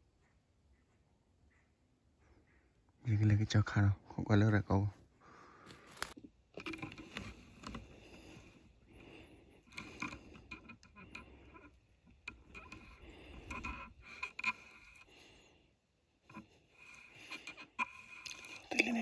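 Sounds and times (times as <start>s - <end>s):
rustling and scraping: 5.7s - 15.4s.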